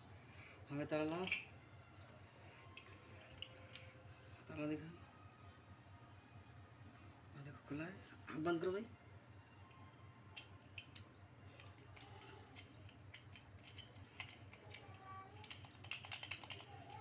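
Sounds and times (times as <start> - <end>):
padlock clicks and rattles: 10.4 - 17.0.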